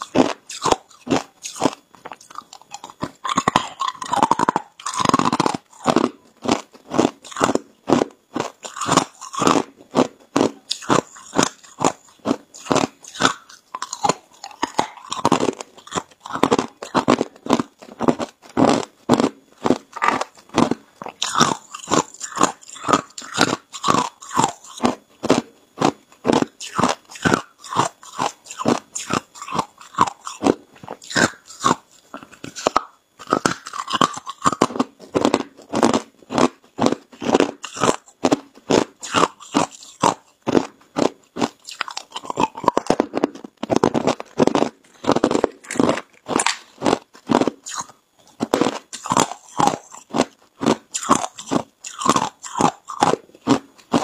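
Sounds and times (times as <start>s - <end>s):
ice being chewed: 0.0s - 54.0s.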